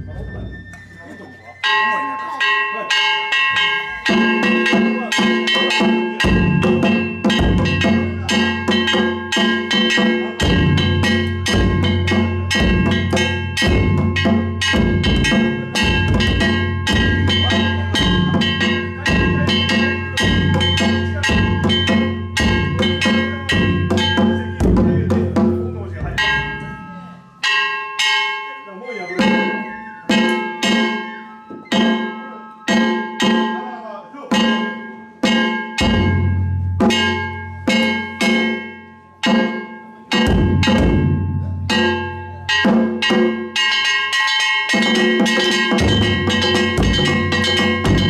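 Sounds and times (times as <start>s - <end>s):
metallic bell-like tones: 0.0s - 48.0s
smaller barrel drum: 4.0s - 26.8s, 34.3s - 43.7s, 44.7s - 48.0s
large deep drum: 10.4s - 26.7s, 40.3s - 41.8s.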